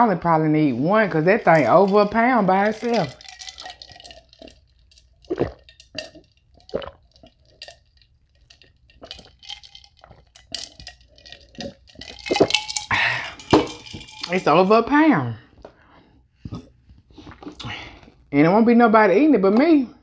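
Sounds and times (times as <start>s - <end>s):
person gulping water: 1.3s - 14.4s, 16.4s - 18.2s.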